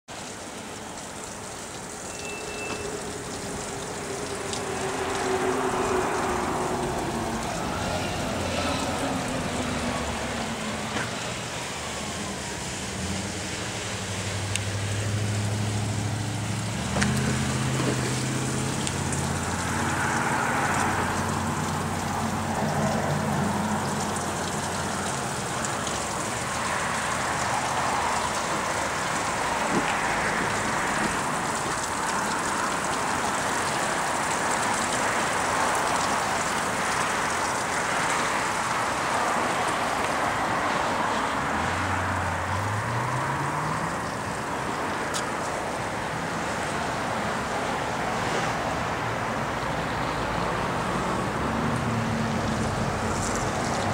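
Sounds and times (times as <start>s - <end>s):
vehicles passing: 0.1s - 53.9s
low engine hum: 2.8s - 37.7s.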